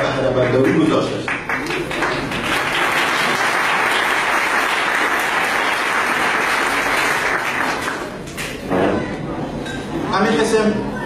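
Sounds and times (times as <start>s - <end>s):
audience applauding: 0.4s - 8.6s.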